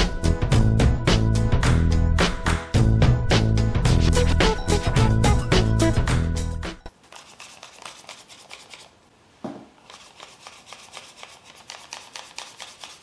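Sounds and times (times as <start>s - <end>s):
paper rustling and clicking: 7.0s - 9.0s, 9.8s - 13.0s.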